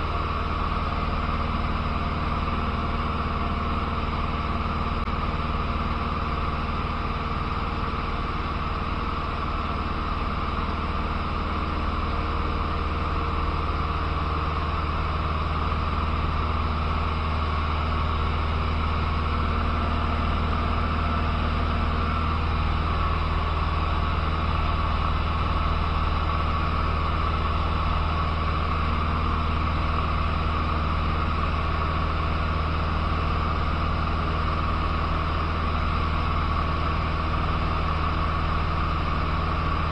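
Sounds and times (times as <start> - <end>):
airplane engine droning: 0.0 - 39.9.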